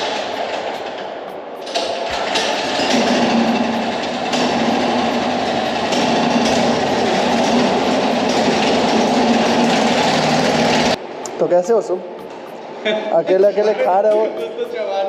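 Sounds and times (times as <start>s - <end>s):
vehicle running noise: 0.0s - 11.2s.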